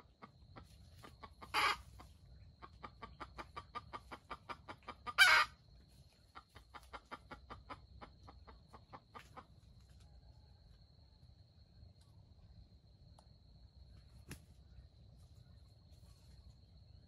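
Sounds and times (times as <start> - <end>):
wild chickens clucking rapidly: 0.0 - 11.1.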